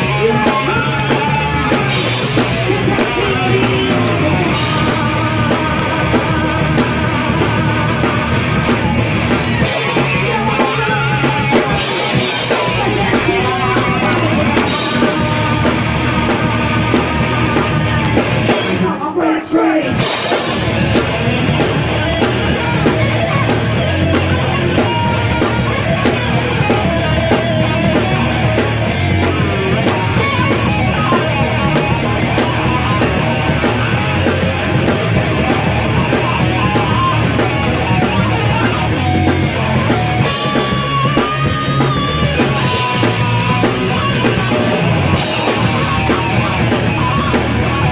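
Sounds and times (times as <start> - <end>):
live rock band playing: 0.0 - 19.1, 19.9 - 47.9.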